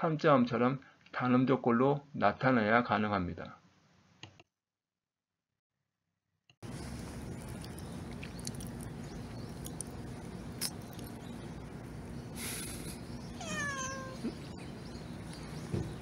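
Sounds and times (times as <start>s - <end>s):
outdoor background hiss: 6.6s - 16.0s
cat meowing: 13.4s - 14.5s.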